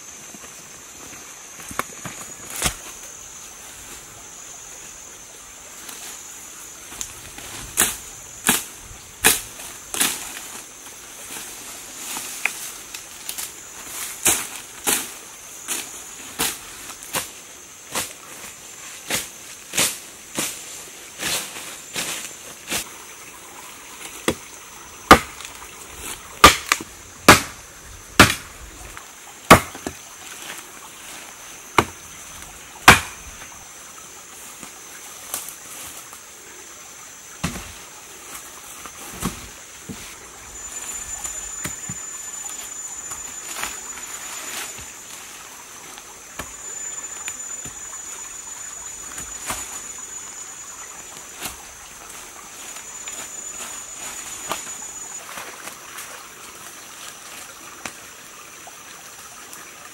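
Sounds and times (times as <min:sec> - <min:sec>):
insects buzzing: 0:00.0 - 0:59.9
blade chopping stems: 0:25.1 - 0:25.4, 0:26.4 - 0:27.6.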